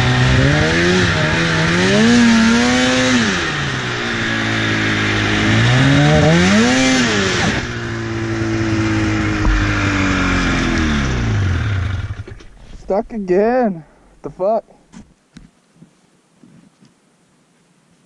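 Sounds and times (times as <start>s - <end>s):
snowmobile engine revving: 0.0s - 12.4s.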